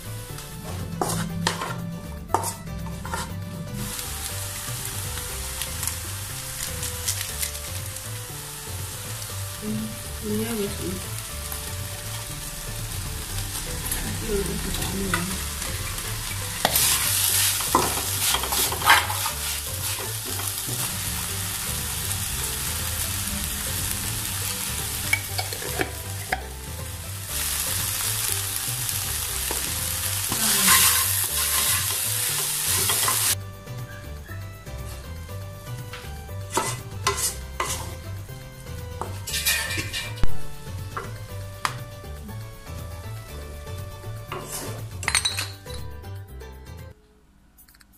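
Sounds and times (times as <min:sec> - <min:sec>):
filling sizzling in frying pan: 0:00.0 - 0:33.4, 0:34.7 - 0:45.2
spatula scraping pan: 0:00.3 - 0:05.9, 0:11.2 - 0:26.6, 0:29.4 - 0:33.4, 0:36.4 - 0:38.1, 0:39.0 - 0:40.3, 0:44.3 - 0:45.0.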